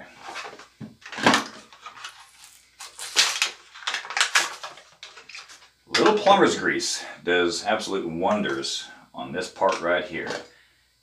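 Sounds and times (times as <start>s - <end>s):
plastic parts rustling and clacking: 0.2s - 6.4s, 9.6s - 10.5s.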